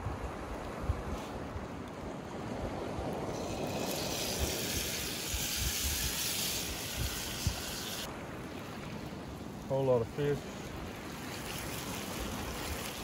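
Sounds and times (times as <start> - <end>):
food sizzling in a frying pan: 3.4 - 8.1.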